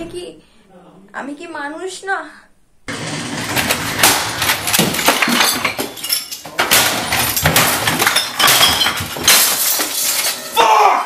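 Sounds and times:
objects crashing on a desk: 2.9 - 10.6
glass breaking: 2.9 - 10.9.

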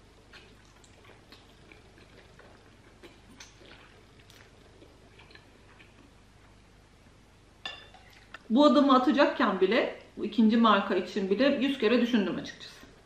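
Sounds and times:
faint slurping and chewing: 0.2 - 6.6, 7.9 - 8.5.

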